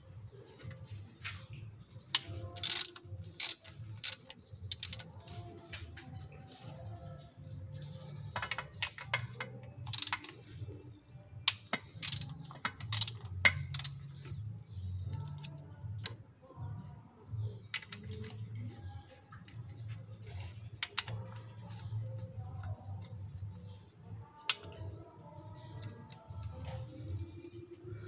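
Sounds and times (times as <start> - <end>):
socket ratchet clicking: 2.1 - 5.2, 8.8 - 10.6, 11.5 - 14.1
metal tools clinking: 2.2 - 5.2.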